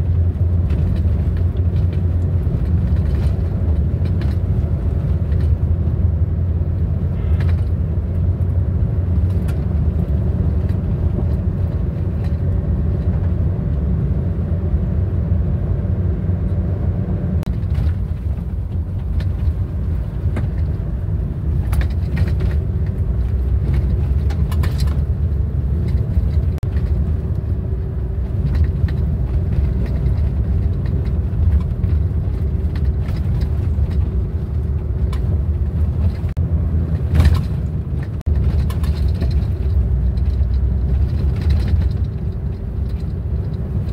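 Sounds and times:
car driving on gravel: 0.0 - 43.9.

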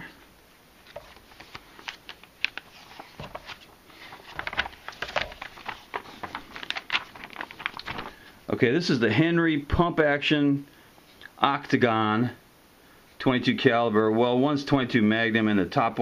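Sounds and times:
catalog pages flipping: 0.8 - 8.4.

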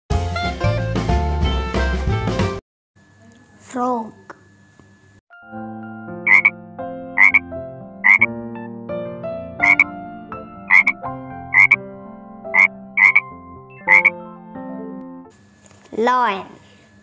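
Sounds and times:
frog croaking: 6.3 - 6.5, 7.2 - 7.4, 8.0 - 8.3, 9.6 - 9.9, 10.7 - 11.8, 12.5 - 14.2.

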